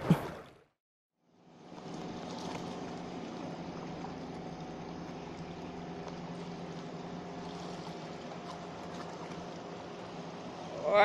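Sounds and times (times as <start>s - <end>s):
low steady hum: 1.3s - 11.0s
seawater sloshing against rocks: 1.7s - 10.0s.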